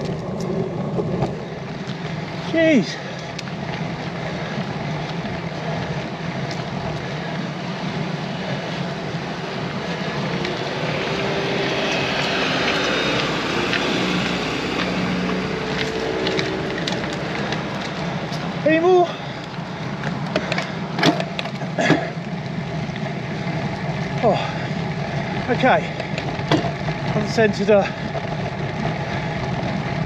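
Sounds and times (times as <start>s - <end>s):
wind noise on microphone: 0.0s - 21.7s
car engine passing slowly: 0.0s - 30.0s.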